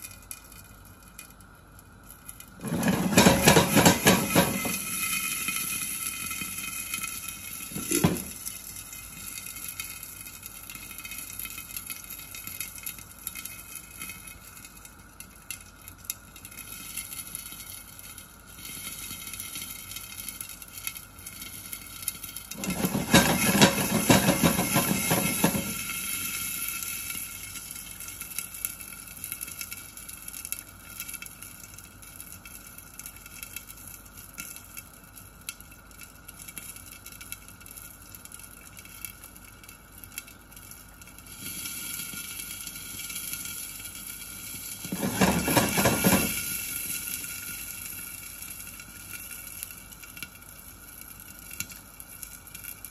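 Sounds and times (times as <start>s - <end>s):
hot oil sizzling and crackling: 0.0s - 52.9s
pan rattling: 2.6s - 5.8s, 7.6s - 8.5s, 22.5s - 26.1s, 44.8s - 46.6s.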